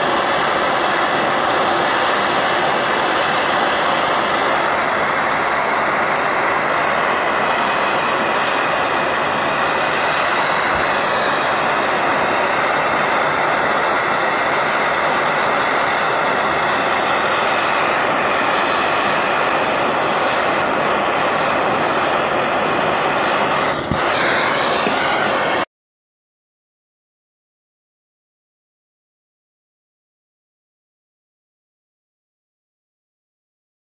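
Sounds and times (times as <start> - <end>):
blowtorch flame hissing: 0.0 - 25.7.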